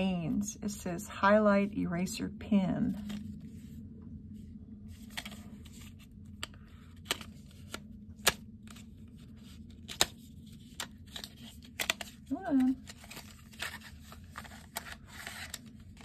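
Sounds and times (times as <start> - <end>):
rustling of cardboard: 8.7 - 16.0.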